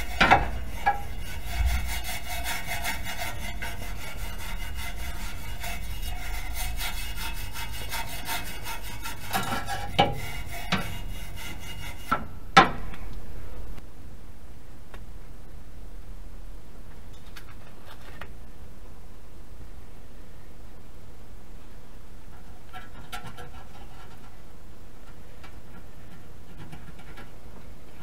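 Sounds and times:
scraping on metal pipe: 0:00.0 - 0:12.8, 0:22.3 - 0:24.5.

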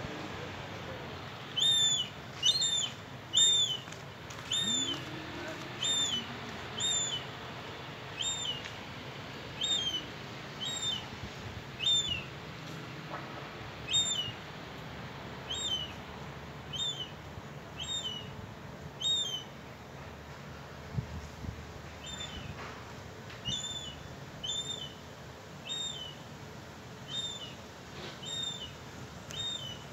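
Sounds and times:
gull piping calls: 0:01.6 - 0:03.8, 0:04.5 - 0:05.1, 0:05.8 - 0:07.2, 0:09.6 - 0:10.0, 0:10.6 - 0:11.0, 0:13.9 - 0:14.3.

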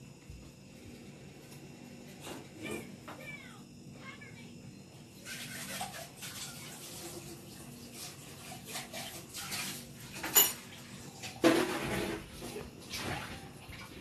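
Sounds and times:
kitchenware clinking: 0:09.5 - 0:12.2.

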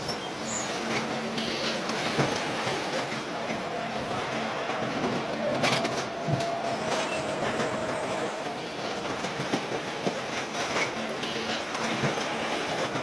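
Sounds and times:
machinery rumbling hum: 0:00.0 - 0:09.6.

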